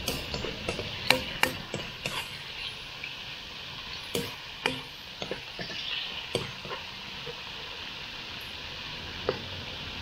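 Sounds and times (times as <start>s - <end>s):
utensil clicking against pan: 0.0s - 2.4s, 4.1s - 7.4s
meat sizzling in a pan: 0.0s - 10.0s.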